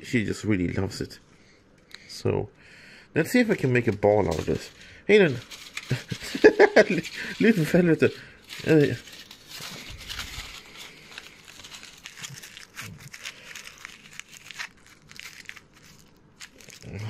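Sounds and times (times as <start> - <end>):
foil wrappers crinkling: 3.8 - 17.0.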